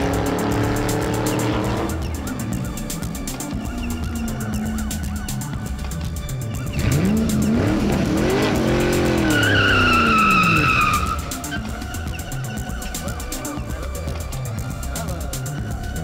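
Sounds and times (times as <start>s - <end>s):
background music: 0.0s - 16.0s
tyre screech: 6.5s - 13.0s
car engine speeding past: 6.6s - 11.7s.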